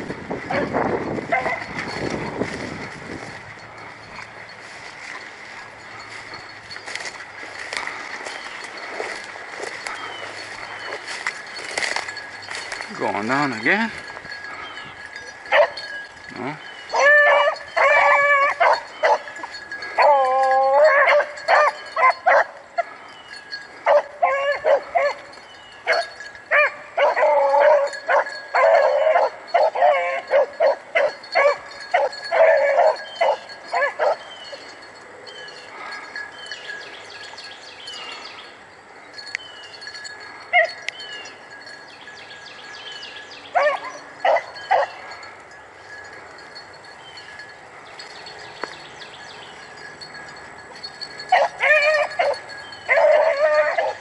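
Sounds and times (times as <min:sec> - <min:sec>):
hounds baying: 0:00.0 - 0:54.0.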